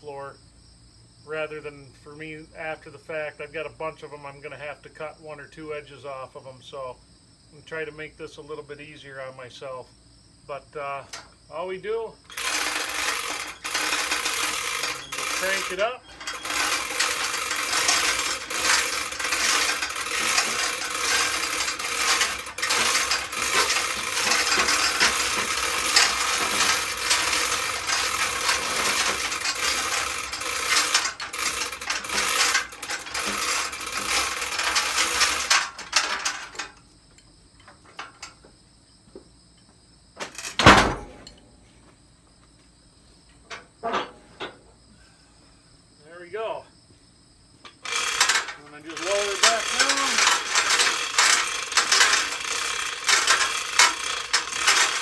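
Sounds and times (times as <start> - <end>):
chain hoist clicking and rattling: 12.2 - 38.4, 40.2 - 41.4, 47.6 - 55.0.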